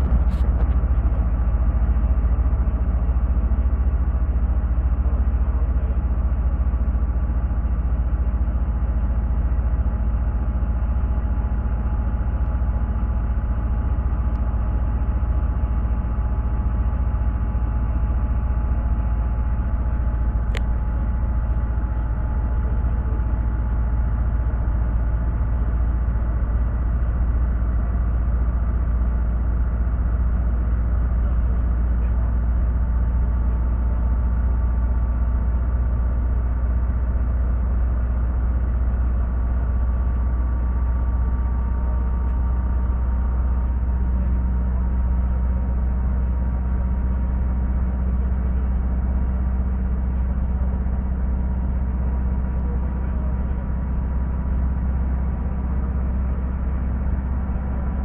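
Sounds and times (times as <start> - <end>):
bus engine and tyre rumble: 0.0 - 58.0.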